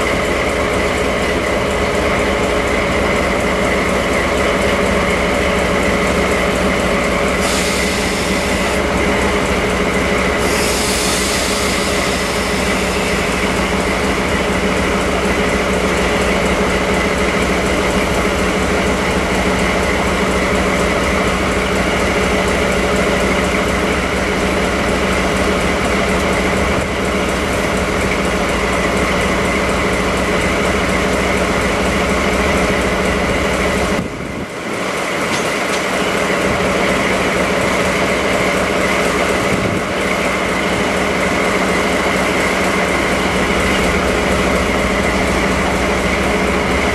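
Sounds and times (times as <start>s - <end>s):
diesel locomotive engine idling: 0.0s - 46.9s
short hisses: 10.4s - 13.1s.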